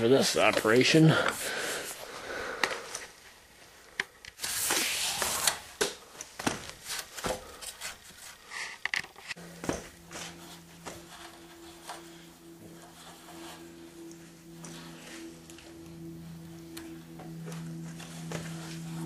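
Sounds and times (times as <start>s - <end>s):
rope rustling and scraping: 6.5s - 19.0s
low held note: 9.4s - 19.0s.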